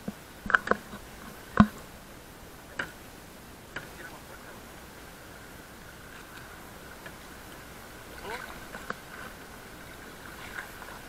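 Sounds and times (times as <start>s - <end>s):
sharp irregular clicks and knocks: 2.8s - 3.0s.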